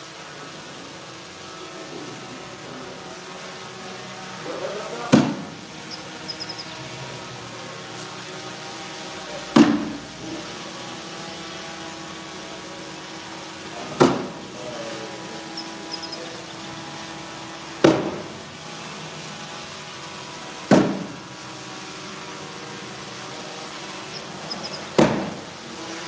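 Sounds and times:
faint steady hum: 0.0 - 10.5, 11.3 - 17.8
bags thudding on wooden board: 5.1 - 5.6, 14.0 - 14.4, 20.7 - 21.2, 25.0 - 25.4.

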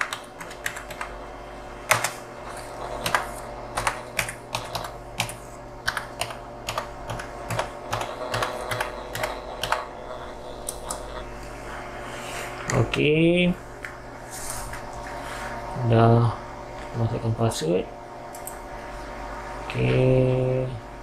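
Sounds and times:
keyboard keys clicking: 0.0 - 1.1, 1.9 - 2.2, 3.8 - 9.9
steady low hum: 0.0 - 21.0.

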